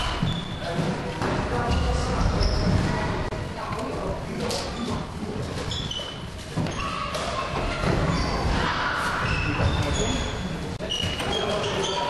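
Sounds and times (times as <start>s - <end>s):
shoes squeaking on floor: 0.1s - 0.8s, 1.7s - 3.0s, 4.6s - 12.0s.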